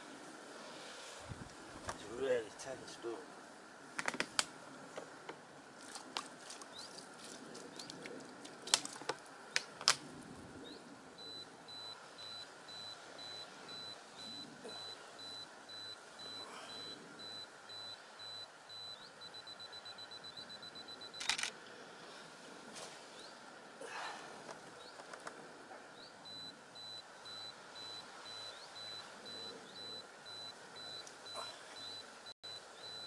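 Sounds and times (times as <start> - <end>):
camera self-timer beeping: 11.2 - 21.5, 26.2 - 33.0.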